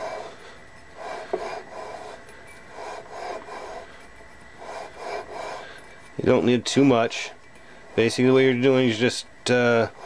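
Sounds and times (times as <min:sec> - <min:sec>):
gritty rasping rub of metal: 0:00.0 - 0:06.4, 0:09.7 - 0:10.0.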